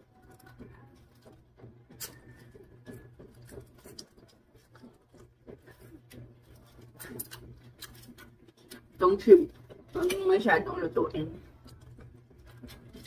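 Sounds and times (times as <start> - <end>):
mouth chewing and sucking: 1.9 - 10.0, 11.5 - 13.0.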